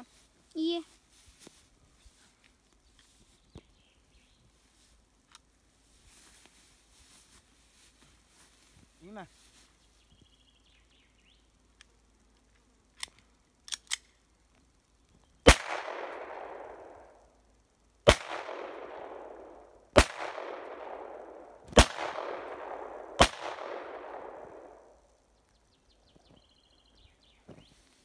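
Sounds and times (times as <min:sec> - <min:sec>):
light pistol clicks: 0:12.9 - 0:14.2
blank pistol shots with echo: 0:15.5 - 0:17.0, 0:18.1 - 0:24.9.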